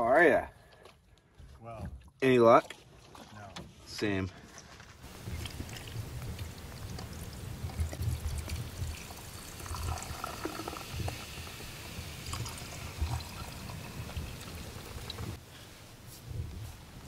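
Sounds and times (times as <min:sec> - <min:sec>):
paddle splashing water: 0:00.6 - 0:03.9, 0:05.0 - 0:11.7.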